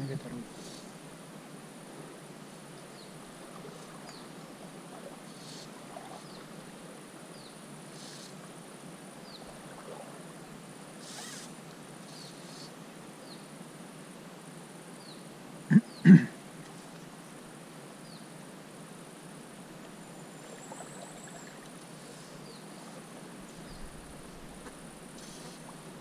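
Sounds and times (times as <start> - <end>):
faint high insect buzz: 0.0 - 26.0.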